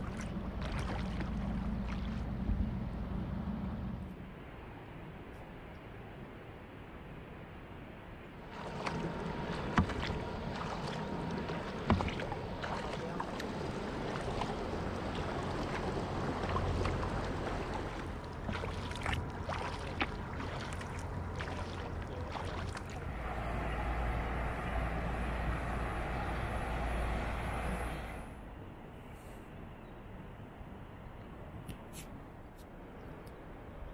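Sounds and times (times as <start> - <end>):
paddle splashing in water: 0.0 - 2.8, 8.5 - 28.3
steady low rumble: 0.0 - 5.2, 8.2 - 29.0
water dripping and trickling: 8.5 - 27.5.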